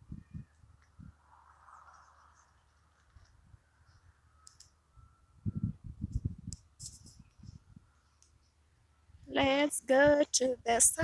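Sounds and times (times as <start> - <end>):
soft footsteps on dirt road: 0.2 - 5.1.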